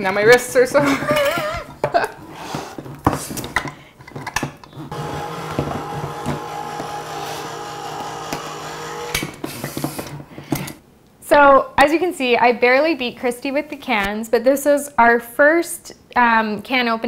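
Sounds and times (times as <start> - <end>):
electric can opener motor: 4.7 - 10.7.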